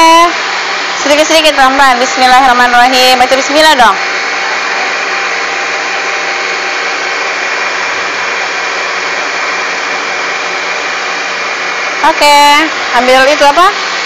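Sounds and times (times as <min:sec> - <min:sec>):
electric mixer motor running: 0:00.0 - 0:14.0.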